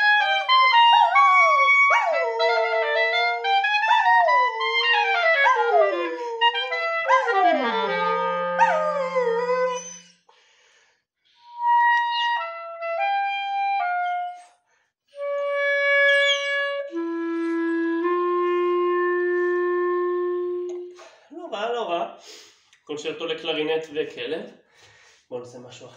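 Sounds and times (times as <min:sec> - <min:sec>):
clarinet playing: 0:00.0 - 0:10.1, 0:11.3 - 0:14.5, 0:15.2 - 0:21.2
dog howling: 0:00.0 - 0:10.2.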